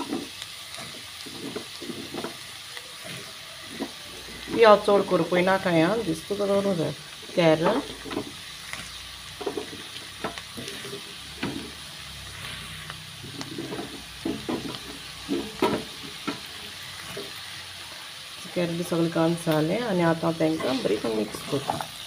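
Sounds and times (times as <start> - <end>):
spoon scraping and knocking pan: 0.0 - 5.4, 7.4 - 17.5, 19.5 - 22.0
vegetables sizzling in hot oil: 0.0 - 22.0.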